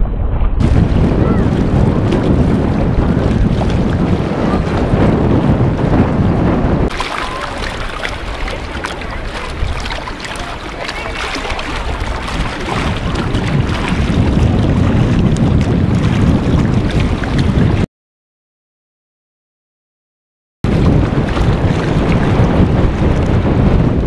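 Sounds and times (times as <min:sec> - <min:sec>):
wind buffeting microphone: 0:00.0 - 0:17.9, 0:20.6 - 0:24.0
small waves lapping on shore: 0:06.9 - 0:17.8.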